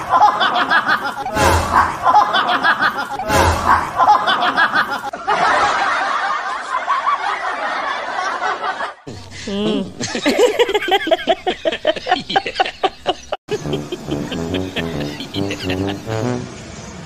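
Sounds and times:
person laughing: 0.0 - 5.1, 9.1 - 16.5.

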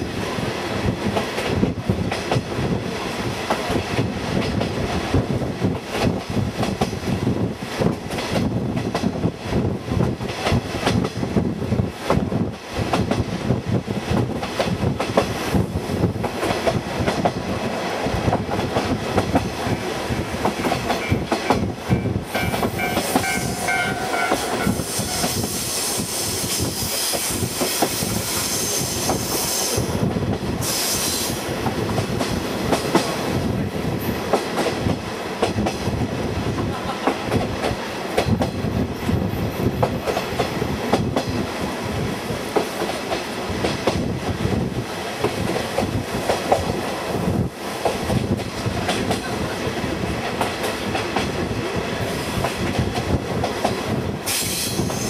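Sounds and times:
train wheels clattering over rails: 0.0 - 55.0
rushing hiss: 24.4 - 30.0, 30.6 - 31.6, 54.2 - 55.0.

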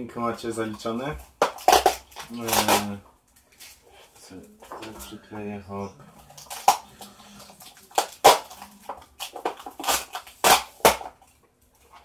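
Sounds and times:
plastic containers clicking and rustling: 0.6 - 3.7, 6.4 - 12.0
sharp plastic knocks: 1.2 - 2.9.

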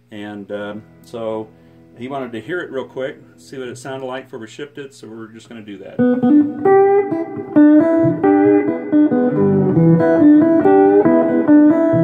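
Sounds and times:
electric slide guitar: 6.0 - 12.0.

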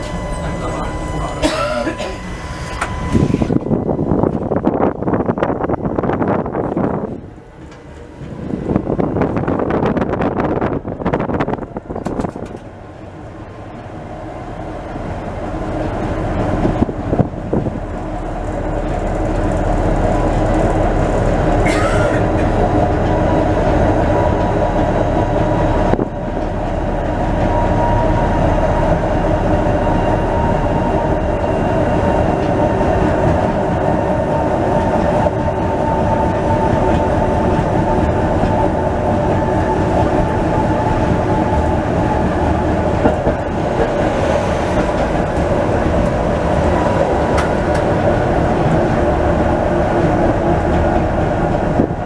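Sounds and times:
tram rail running noise: 0.0 - 52.0
tram whine: 0.0 - 52.0.

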